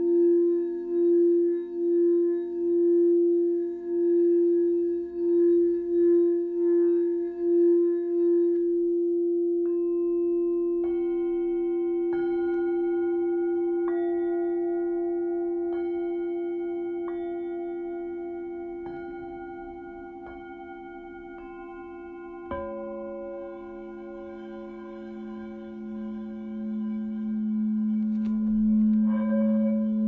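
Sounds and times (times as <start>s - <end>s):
low singing bowl ringing: 0.0s - 30.0s
higher singing bowls struck: 9.6s - 30.0s.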